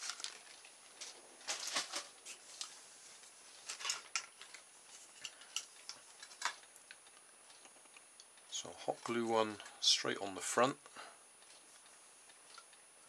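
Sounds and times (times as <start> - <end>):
plastic bag rustling: 0.0 - 6.7.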